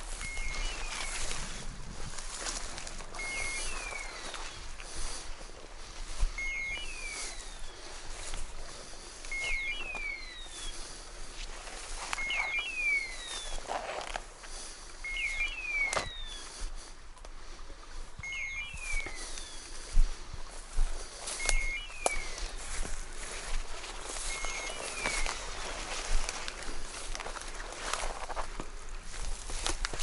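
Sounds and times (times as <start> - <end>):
beeper collar signal: 0.0 - 1.4, 3.1 - 4.5, 6.3 - 7.8, 9.3 - 10.8, 12.2 - 13.7, 15.0 - 16.4, 18.2 - 19.6, 21.3 - 22.6, 24.2 - 25.6
footsteps through dry brush: 0.0 - 30.0.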